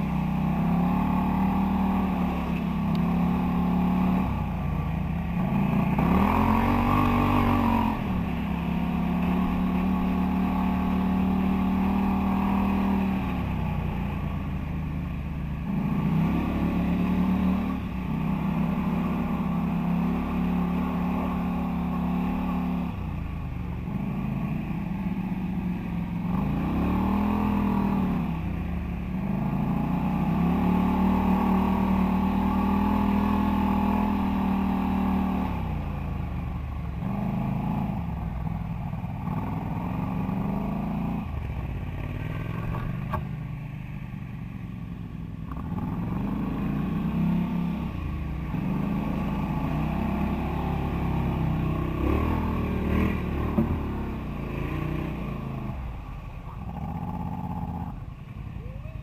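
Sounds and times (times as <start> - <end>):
quad engine revving: 0.0 - 4.5, 5.4 - 14.0, 26.2 - 28.4, 29.2 - 35.8, 45.5 - 56.0.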